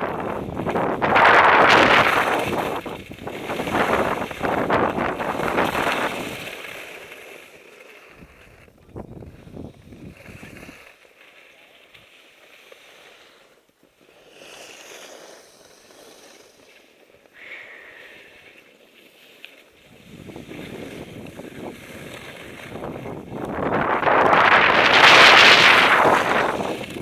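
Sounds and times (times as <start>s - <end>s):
wind on microphone: 0.0s - 6.6s, 8.2s - 10.8s, 19.8s - 27.0s
rustle of snow and clothing: 0.0s - 27.0s
skis sliding over snow: 0.0s - 27.0s.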